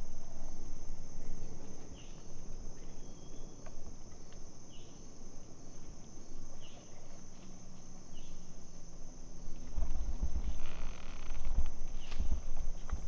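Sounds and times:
insect chorus drone: 0.0 - 13.0
short insect chirp: 0.0 - 13.0.

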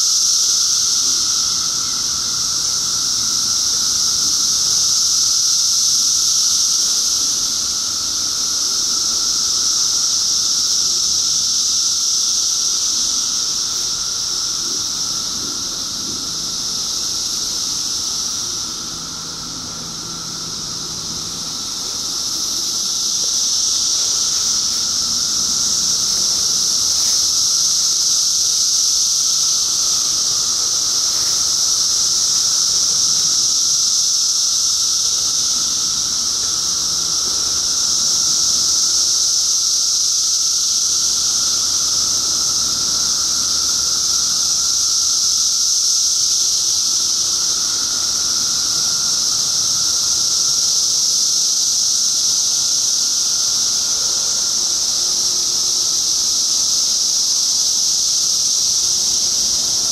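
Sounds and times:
cicadas shrilling: 0.0 - 59.9
low drone: 13.4 - 39.6.

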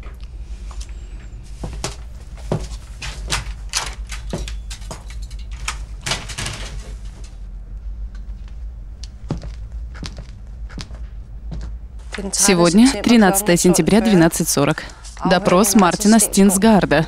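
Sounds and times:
footsteps in a small room: 0.0 - 5.2, 6.8 - 12.3
steady low hum: 0.0 - 17.0.

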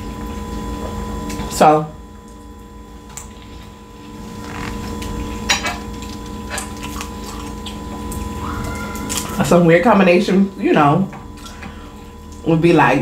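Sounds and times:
faint steady hum: 0.0 - 13.0
chewing food: 3.2 - 9.7.

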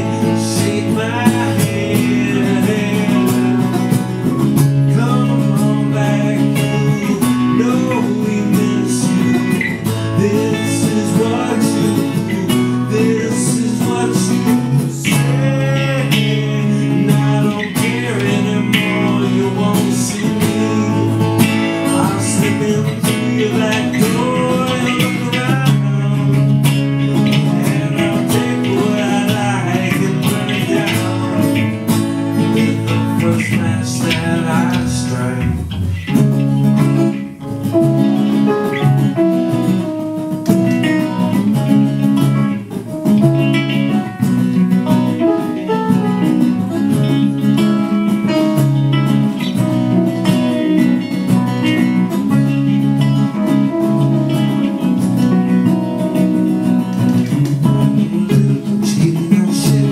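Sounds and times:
man singing: 0.0 - 38.1, 43.2 - 59.9
acoustic guitars strummed and picked: 0.0 - 59.9
keyboard chords: 0.0 - 59.9.

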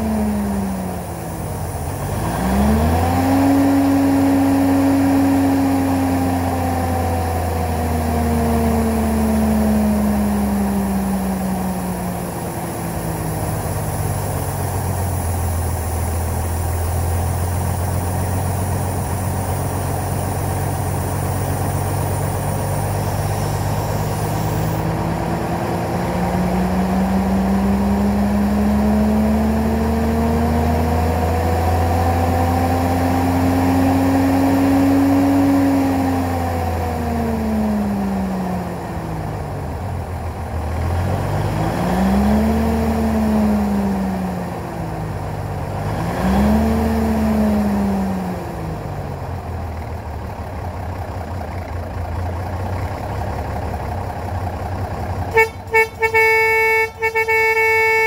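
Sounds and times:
diesel truck engine revving: 0.0 - 58.0
truck horn tooting: 55.3 - 58.0.

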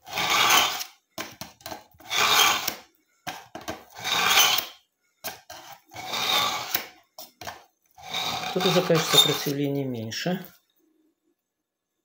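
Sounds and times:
knife rasping through sharpener: 0.0 - 0.9, 2.0 - 2.8, 3.9 - 6.9, 8.0 - 9.6.

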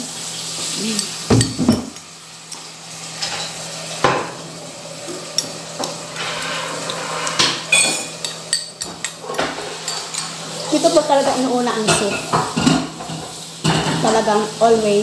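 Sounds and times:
dishes clattering: 1.3 - 2.0, 3.2 - 4.4, 5.0 - 14.4.

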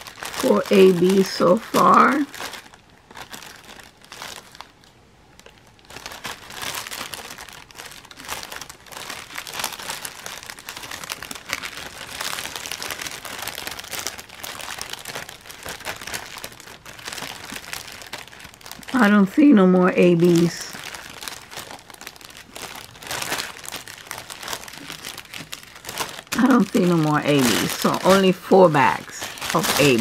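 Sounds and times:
plastic bags crinkling: 0.0 - 30.0.

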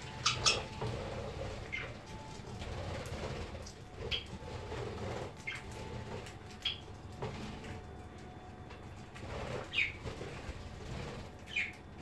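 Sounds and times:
wings flapping: 0.0 - 12.0
budgerigars chirping: 0.1 - 2.0, 4.0 - 4.4, 6.6 - 6.9, 9.6 - 10.1, 11.5 - 11.8.

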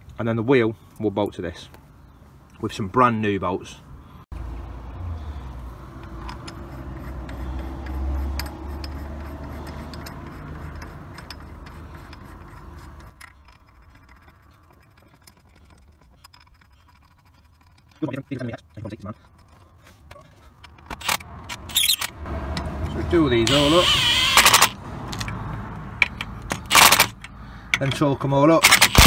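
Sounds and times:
metal bolts clicking and clinking: 6.0 - 23.8.

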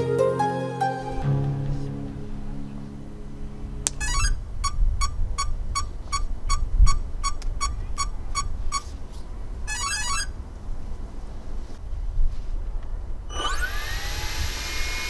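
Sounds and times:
wind rumbling on microphone: 3.2 - 15.0
rising electronic tones: 13.3 - 15.0.

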